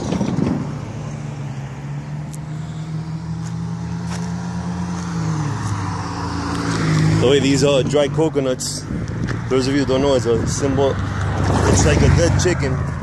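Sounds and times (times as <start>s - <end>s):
car engine hum with tyre noise: 0.0s - 13.0s.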